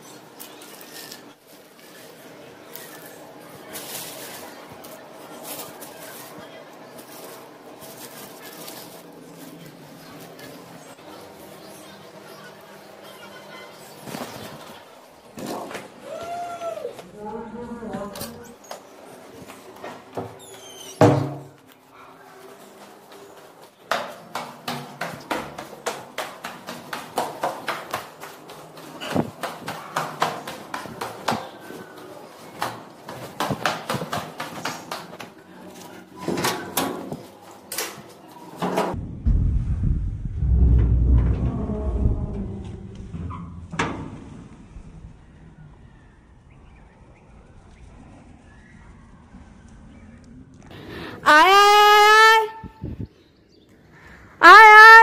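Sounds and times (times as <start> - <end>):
faint outdoor background: 0.0 - 55.0
metal door rumble: 38.9 - 45.0.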